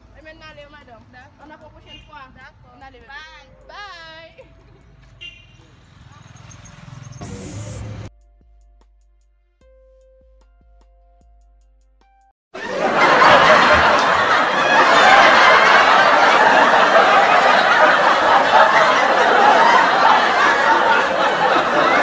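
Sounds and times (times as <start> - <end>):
canned laughter: 12.6 - 22.0.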